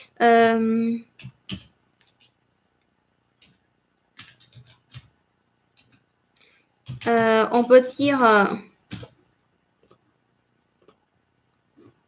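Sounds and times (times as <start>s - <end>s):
computer keys clicking: 1.0s - 2.4s, 4.2s - 6.1s, 6.8s - 7.2s, 8.9s - 10.1s, 10.8s - 11.1s.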